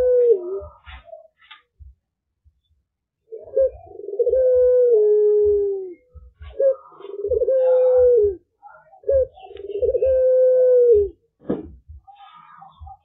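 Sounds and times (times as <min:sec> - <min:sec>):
dove cooing: 0:00.0 - 0:01.4, 0:03.2 - 0:11.2.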